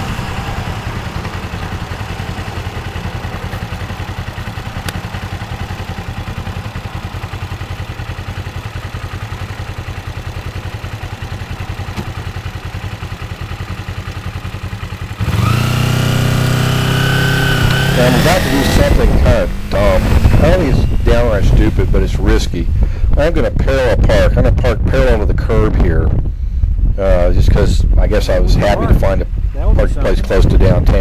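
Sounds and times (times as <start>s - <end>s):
motorcycle engine idling and revving: 0.0s - 31.0s.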